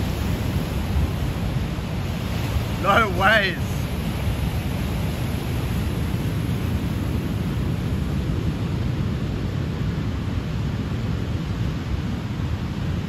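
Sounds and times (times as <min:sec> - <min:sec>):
surf breaking on rocks: 0:00.0 - 0:07.0
wind buffeting microphone: 0:00.0 - 0:13.0.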